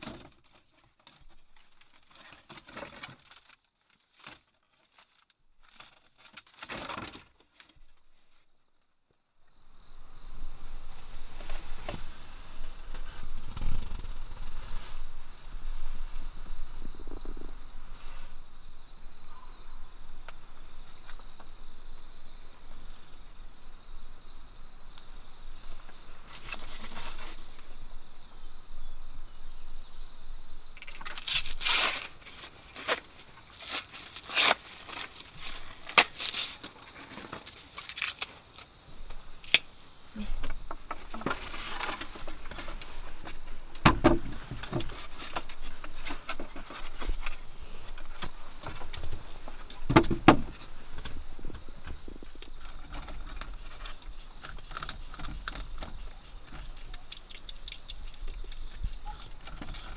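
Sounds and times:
corn husks being torn off: 0:00.0 - 0:07.8, 0:30.8 - 0:39.7, 0:52.2 - 0:59.9
outdoor background: 0:00.0 - 0:59.9
faint high insect-like tone: 0:08.0 - 0:59.9.

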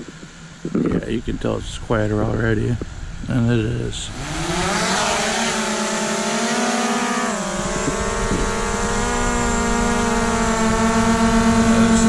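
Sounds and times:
drone propellers whining: 0:03.2 - 0:12.0.

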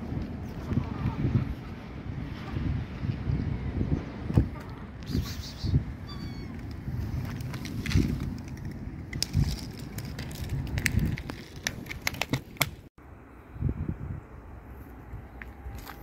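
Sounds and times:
cats crunching dry kibble: 0:07.2 - 0:12.6.

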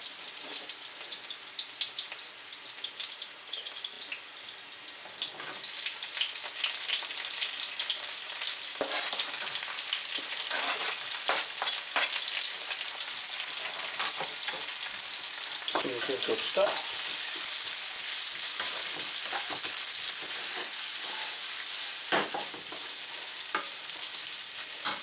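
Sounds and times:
vegetables sizzling in oil: 0:00.0 - 0:25.0
knife scraping cutting board: 0:08.8 - 0:09.6, 0:10.2 - 0:12.2, 0:13.5 - 0:14.7, 0:18.6 - 0:21.5.

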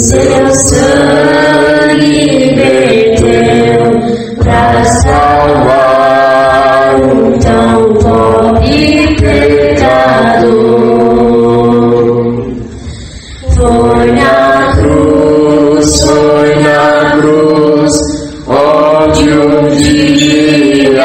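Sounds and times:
woman singing a slow hymn: 0:13.4 - 0:15.2.

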